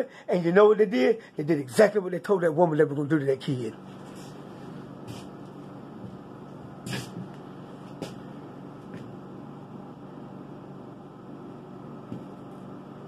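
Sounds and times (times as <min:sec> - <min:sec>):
low background hum: 0:00.0 - 0:13.0.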